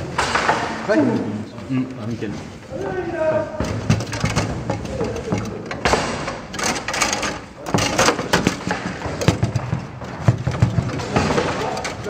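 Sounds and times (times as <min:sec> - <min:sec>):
foosball rods clacking: 0:00.0 - 0:01.0, 0:03.6 - 0:12.0
foosball ball knocking: 0:03.6 - 0:12.0.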